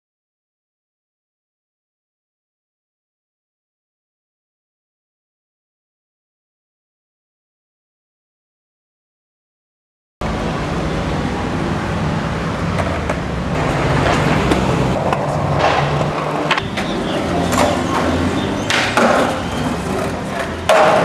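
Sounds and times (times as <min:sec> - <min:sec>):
skateboard wheels rolling: 0:10.2 - 0:21.0
skateboard popping and landing: 0:12.7 - 0:21.0.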